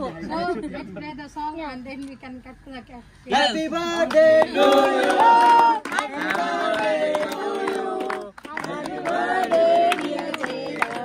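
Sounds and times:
hand claps: 4.0 - 11.0.

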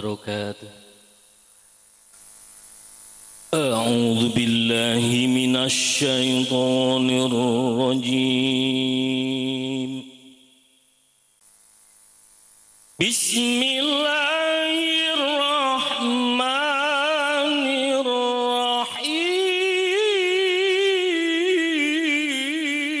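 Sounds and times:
man chanting through microphone: 0.0 - 1.0, 3.5 - 10.2, 13.0 - 23.0.

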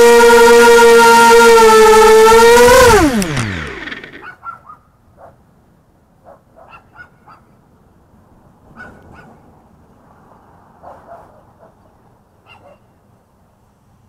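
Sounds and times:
dog barking faintly: 4.2 - 5.4, 6.2 - 7.6, 10.8 - 11.8, 12.4 - 13.0.

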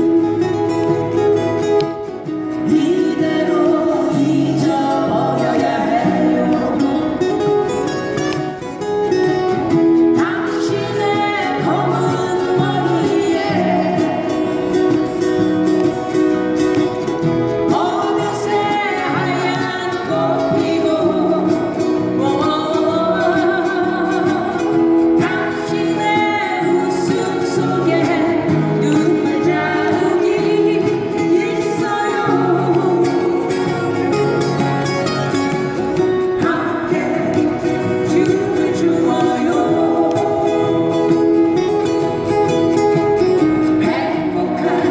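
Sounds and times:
acoustic guitars strumming: 0.0 - 44.9
woman singing into a microphone: 2.5 - 7.8, 10.0 - 15.2, 17.5 - 34.8, 36.0 - 41.8, 43.4 - 44.9.

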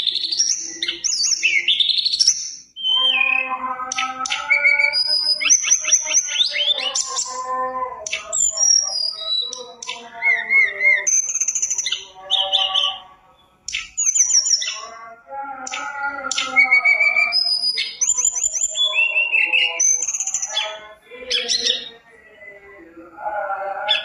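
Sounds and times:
songbird singing: 0.0 - 24.0.

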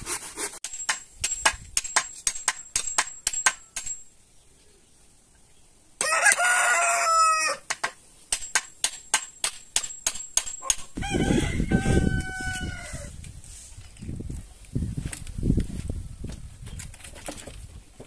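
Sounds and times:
rooster crowing: 6.0 - 7.7, 10.7 - 13.1.

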